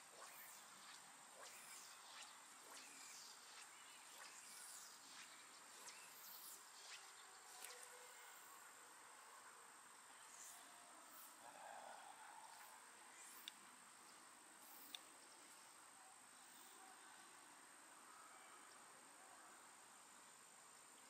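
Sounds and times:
high-pitched insect trill: 0.0s - 8.6s.

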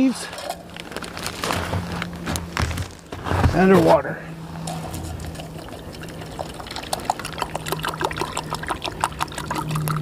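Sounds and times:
water pouring into metal cup: 4.7s - 10.0s.

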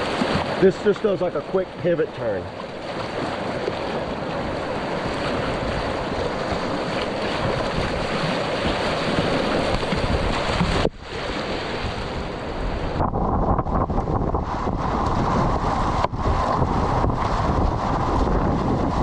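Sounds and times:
river rapid rushing and splashing: 0.0s - 13.0s
wind noise on microphone: 3.0s - 19.0s.

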